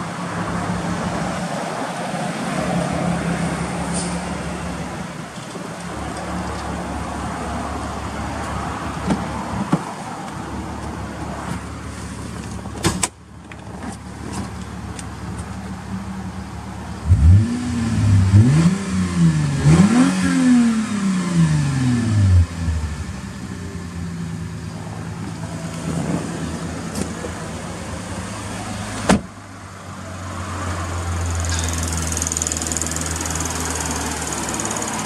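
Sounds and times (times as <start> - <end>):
car engine idling: 31.5 - 35.0.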